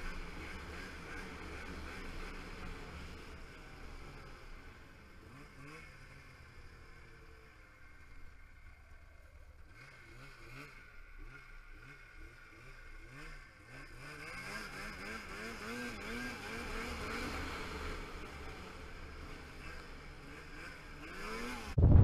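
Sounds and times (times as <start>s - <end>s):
snowmobile engine running: 0.0s - 8.7s, 9.6s - 22.0s.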